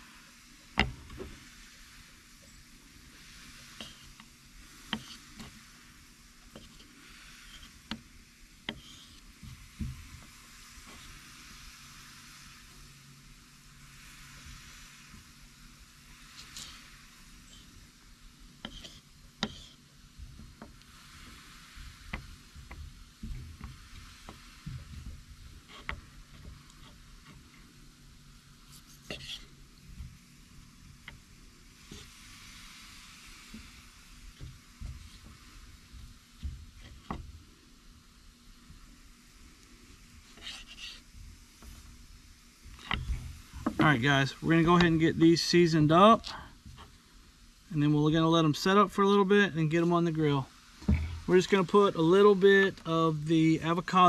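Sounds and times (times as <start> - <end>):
low background hum: 0.0 - 54.0
knife on cutting board: 18.6 - 19.8
light knocks: 50.8 - 51.3
handling noise: 50.8 - 51.8.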